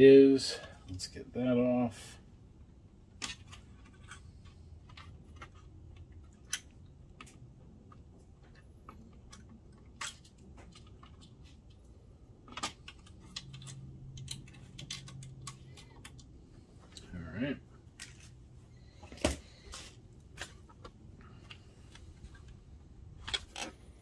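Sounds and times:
faint low hum: 0:00.0 - 0:24.0
hands clicking plastic parts: 0:03.0 - 0:17.2.

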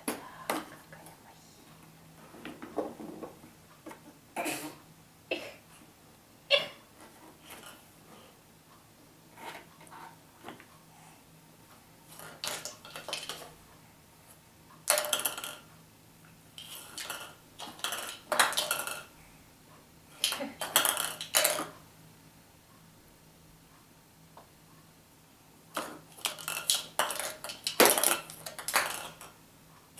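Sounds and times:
plastic toy parts clattering: 0:12.1 - 0:13.5, 0:16.6 - 0:19.1, 0:20.2 - 0:21.7, 0:25.8 - 0:29.3.

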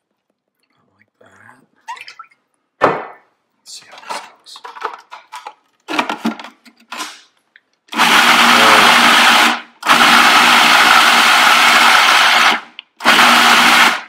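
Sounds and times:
food processor motor blending: 0:07.9 - 0:14.0.

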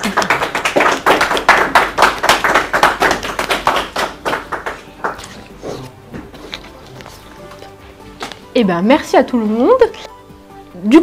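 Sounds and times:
people clapping: 0:00.0 - 0:05.9.

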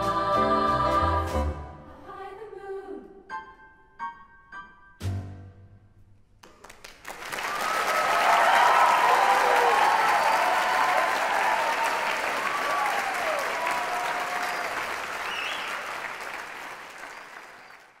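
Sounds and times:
audience applauding: 0:06.4 - 0:18.0
audience cheering: 0:07.2 - 0:18.0.

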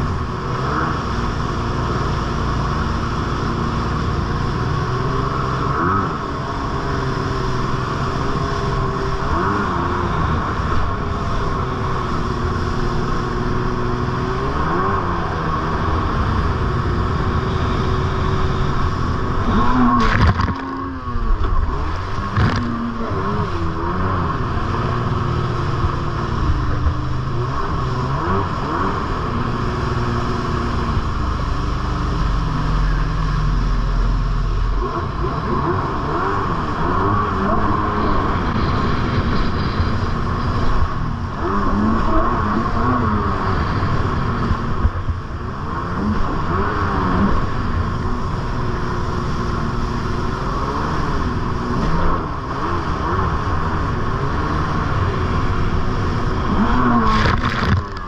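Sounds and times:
jet ski engine running: 0:00.0 - 0:58.0
wind rush: 0:36.1 - 0:58.0.

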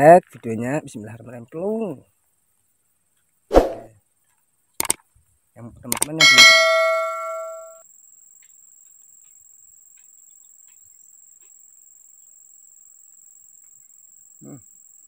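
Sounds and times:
insects chirring: 0:00.0 - 0:15.0
faint ticks: 0:08.3 - 0:11.6.

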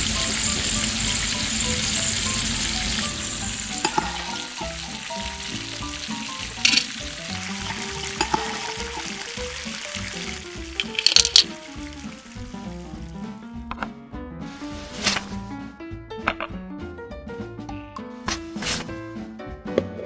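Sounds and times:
chips sizzling in hot oil: 0:00.0 - 0:13.4.

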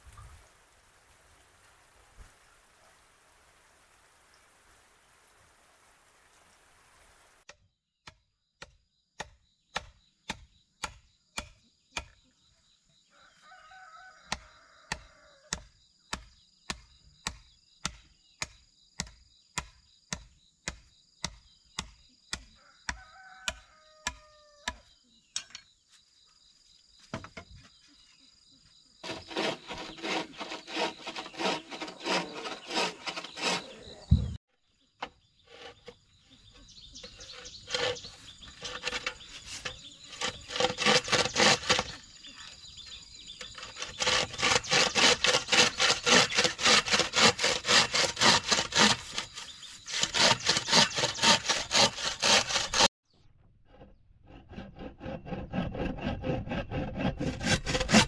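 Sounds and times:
wood chopping: 0:07.5 - 0:12.2, 0:14.3 - 0:25.5
rough rasping noise: 0:29.0 - 0:34.4, 0:35.4 - 0:42.1, 0:43.4 - 0:52.9, 0:53.6 - 0:58.0.

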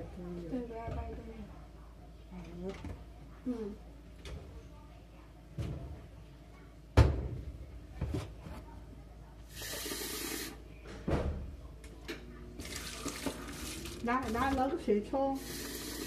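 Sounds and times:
tap water running into pot: 0:12.6 - 0:14.6.

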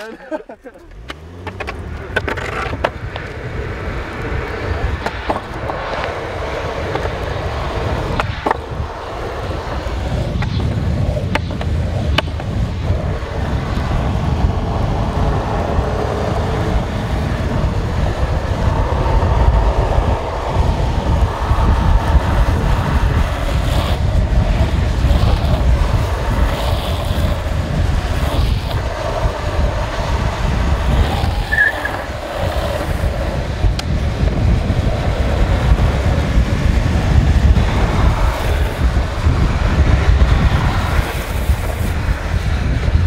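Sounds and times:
longboard wheels rolling on asphalt: 0:00.0 - 0:43.0.

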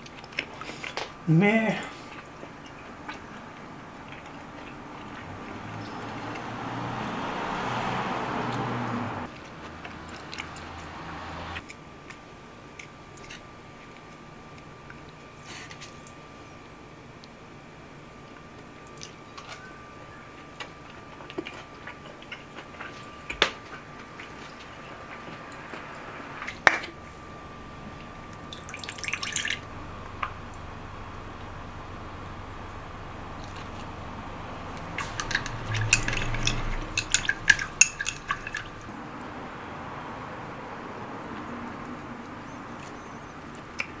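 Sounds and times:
faint steady hum: 0:00.0 - 0:44.0
chopsticks clinking on ceramic dish: 0:35.0 - 0:38.7.

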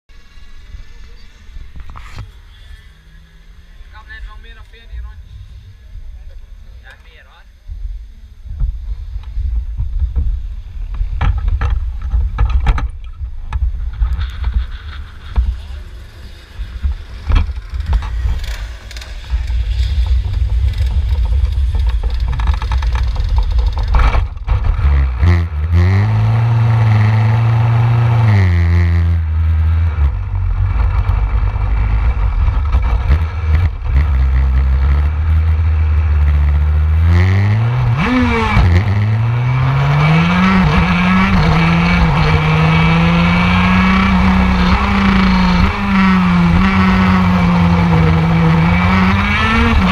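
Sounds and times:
two-stroke kart engine revving: 0:14.0 - 0:49.9.

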